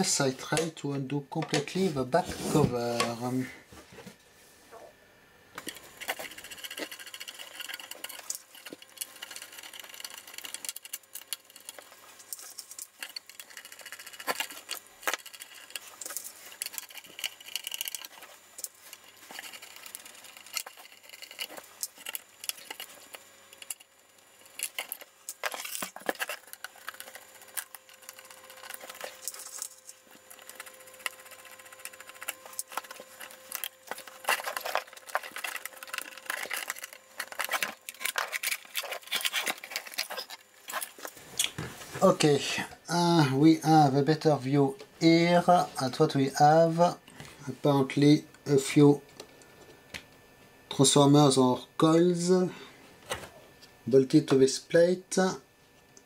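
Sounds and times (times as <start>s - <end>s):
small metal rattles: 5.6s - 41.2s.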